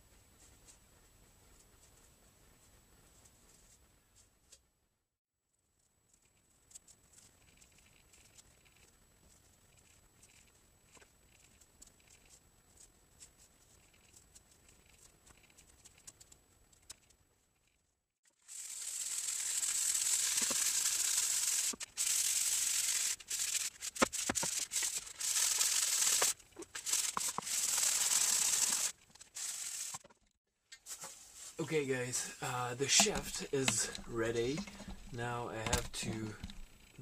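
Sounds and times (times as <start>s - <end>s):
sandpaper rasping on wood: 18.5s - 30.0s
knife scraping wood: 33.0s - 36.7s.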